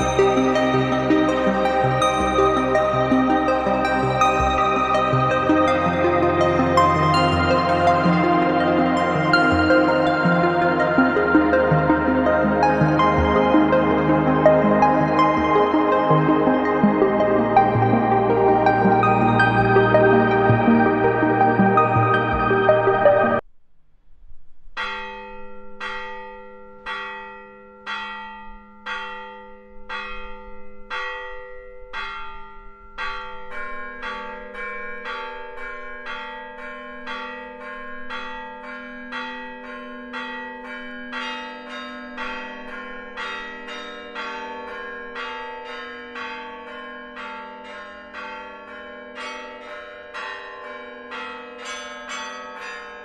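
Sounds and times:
higher church bells pealing: 0.0 - 23.4, 24.8 - 53.0
single church bell struck slowly: 24.8 - 53.0.

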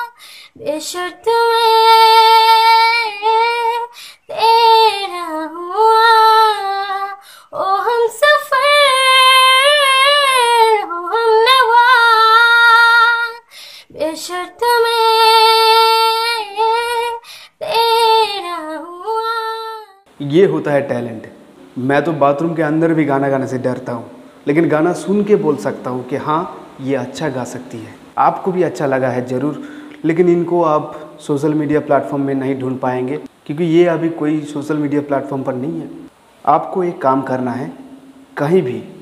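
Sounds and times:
woman singing unaccompanied: 0.0 - 20.1.

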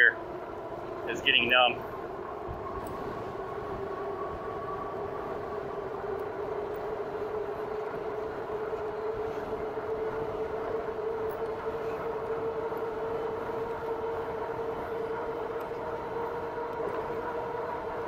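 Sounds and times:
electric bike motor whining: 0.0 - 18.0
wind rumble on microphone: 0.0 - 18.0.

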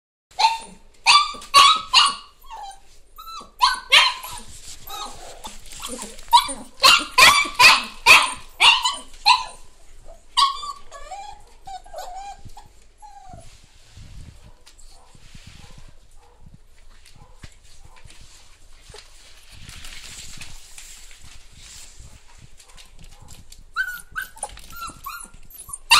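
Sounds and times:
puppies yelping and barking: 0.4 - 13.4, 23.7 - 25.9
puppies whining: 0.4 - 13.5, 23.6 - 25.9.

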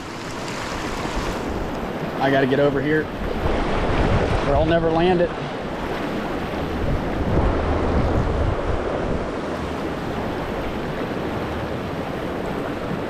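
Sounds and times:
river rushing over rocks: 0.0 - 2.6
wind buffeting microphone: 0.0 - 13.0.

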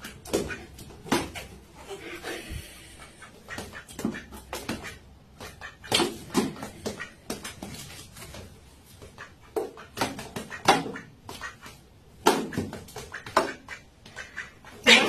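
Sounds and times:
animals scuffling on tiled floor: 6.7 - 9.1.

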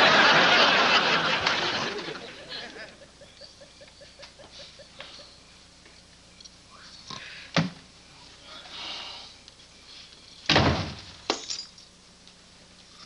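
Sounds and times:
audience laughter: 0.0 - 5.4.

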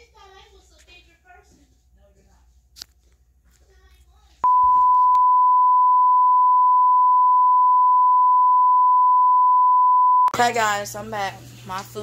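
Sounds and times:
high-pitched test tone beep: 4.4 - 10.3.

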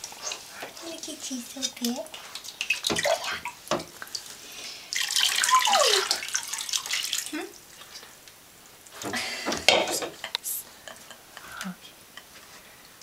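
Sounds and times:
water splashing from a cup: 4.9 - 7.3.

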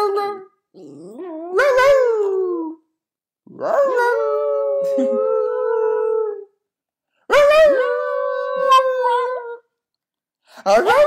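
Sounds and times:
small dog howling: 7.3 - 9.6.

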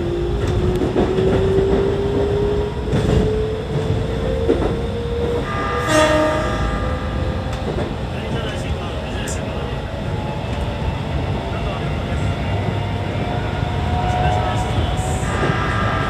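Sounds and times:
short horn-like tone: 5.4 - 7.2.

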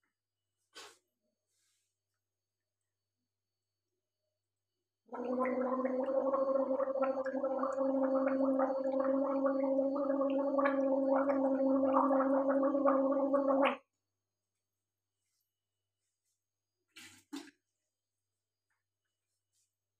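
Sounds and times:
woman gargling: 5.1 - 13.8.

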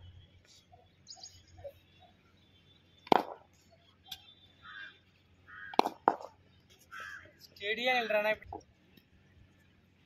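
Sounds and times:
cricket bat striking ball: 3.0 - 3.5, 5.7 - 6.4.

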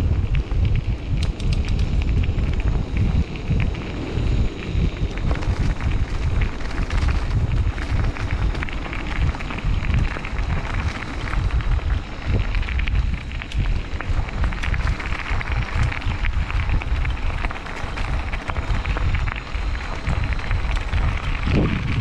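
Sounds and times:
mountain bike rattling on trail: 0.0 - 22.0
wind buffeting microphone: 0.0 - 22.0
sharp clicks: 1.2 - 2.0.

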